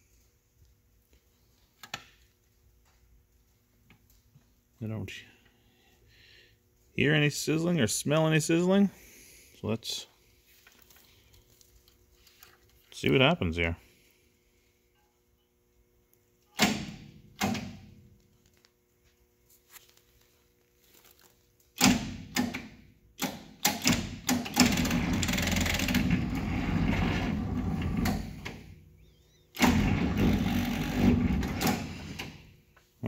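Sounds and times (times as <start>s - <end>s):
tractor starter straining: 23.6s - 28.6s, 29.6s - 32.4s.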